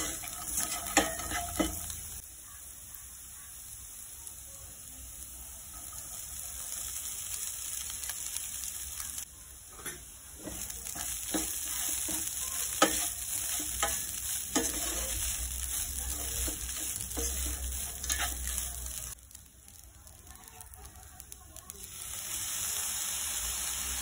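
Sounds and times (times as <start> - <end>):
wooden spatula scraping a pan: 0.0 - 2.2, 9.8 - 19.2
food sizzling in a pan: 0.0 - 24.0.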